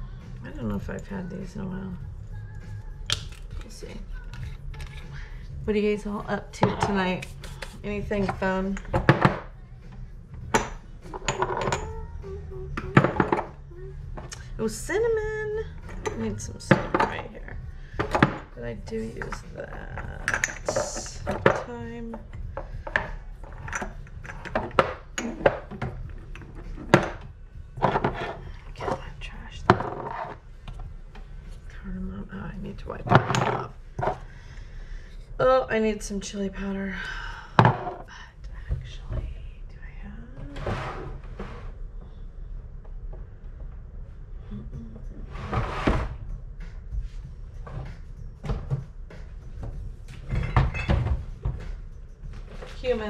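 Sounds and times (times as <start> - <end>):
jars knocking and clicking: 10.5 - 11.9
cupboard door scrape: 27.8 - 29.0, 40.4 - 41.8, 45.2 - 46.2.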